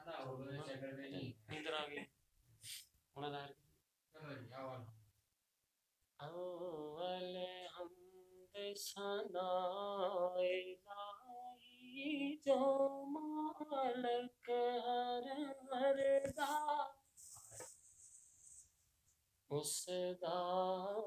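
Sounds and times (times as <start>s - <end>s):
man singing unaccompanied: 6.2s - 17.0s, 19.5s - 21.0s.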